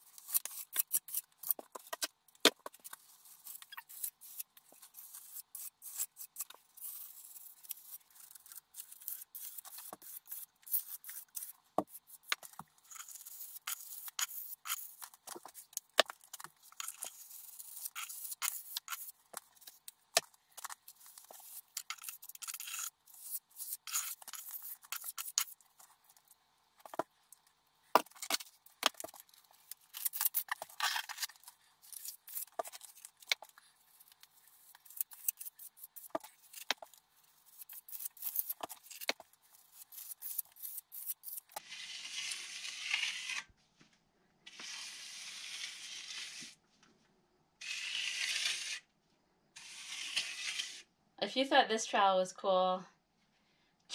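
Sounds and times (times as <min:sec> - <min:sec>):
trowel scraping render on wall: 0:08.0 - 0:25.9, 0:49.6 - 0:50.8.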